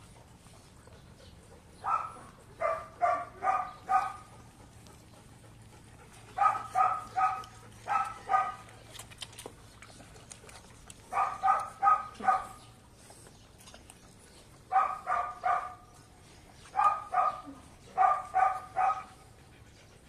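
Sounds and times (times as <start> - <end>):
dog barking: 1.8 - 4.3, 6.4 - 8.6, 11.1 - 12.6, 14.7 - 15.8, 16.8 - 19.1.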